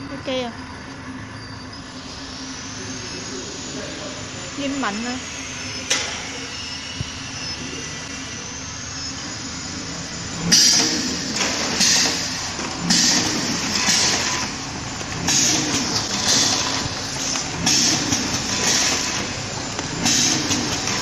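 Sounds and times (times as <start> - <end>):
machine humming: 0.0 - 21.0
pneumatic jaws clunking: 10.4 - 21.0.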